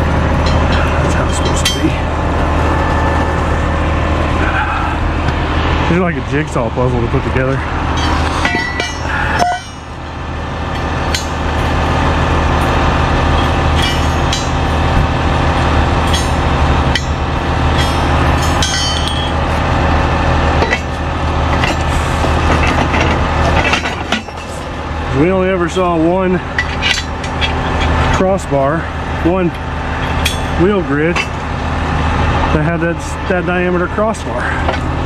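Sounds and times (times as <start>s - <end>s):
truck engine idling: 0.0s - 35.0s
metal parts clanking: 0.4s - 2.0s, 7.9s - 10.0s, 10.7s - 11.4s, 13.3s - 14.8s, 16.0s - 19.6s, 20.6s - 24.7s, 26.5s - 28.3s, 29.5s - 31.4s.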